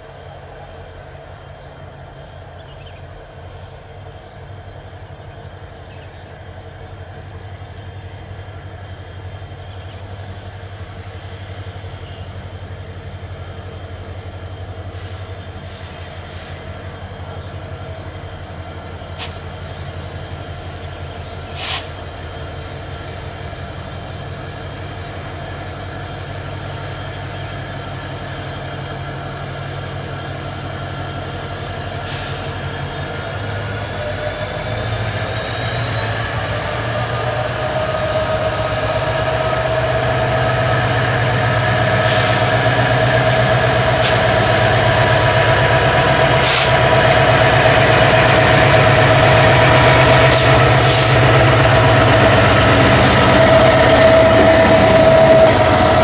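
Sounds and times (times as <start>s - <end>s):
diesel locomotive engine rumble: 0.0s - 56.0s
hiss-like burst: 14.8s - 17.2s, 19.0s - 22.2s, 32.0s - 32.8s, 42.0s - 42.8s, 44.0s - 44.6s, 46.3s - 46.9s, 50.2s - 51.3s.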